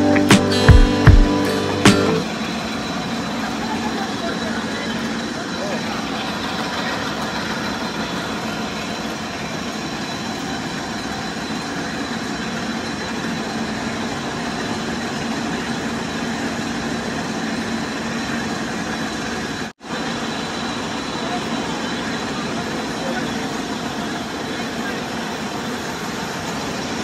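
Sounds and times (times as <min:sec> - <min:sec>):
mill machinery running: 0:00.0 - 0:27.0.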